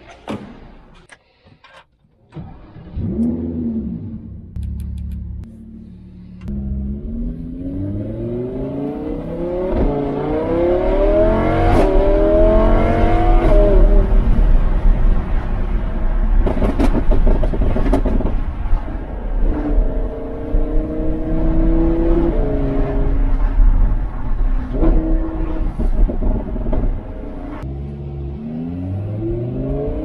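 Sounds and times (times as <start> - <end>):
sports car engine accelerating: 2.8 - 16.1, 19.4 - 25.8, 26.4 - 30.0.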